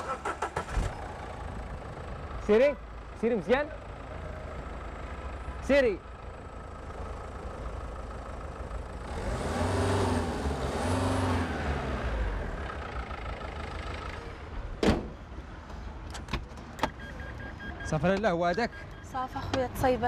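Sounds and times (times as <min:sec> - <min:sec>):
car engine revving: 0:08.9 - 0:14.3.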